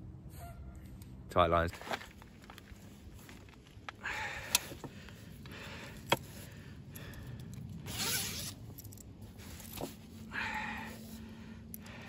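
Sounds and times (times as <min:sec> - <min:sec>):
zip being pulled: 0:07.9 - 0:08.6.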